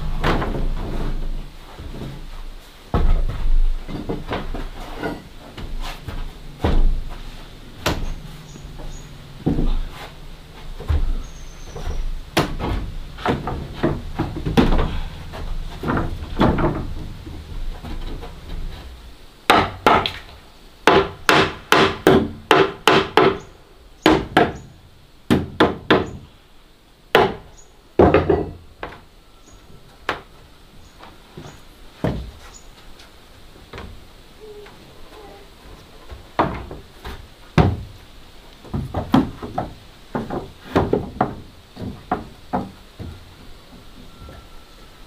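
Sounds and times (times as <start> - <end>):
wooden boards knocking: 2.9 - 10.0, 10.6 - 23.5, 24.1 - 24.7, 25.3 - 26.2, 27.1 - 29.0, 36.0 - 38.0, 38.6 - 43.9.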